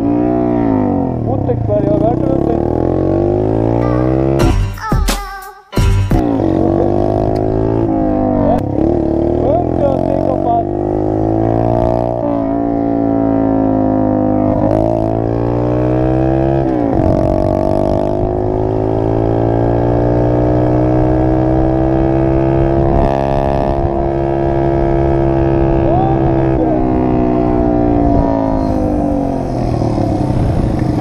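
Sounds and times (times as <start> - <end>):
dirt bike engine revving: 0.0 - 4.6, 6.2 - 31.0.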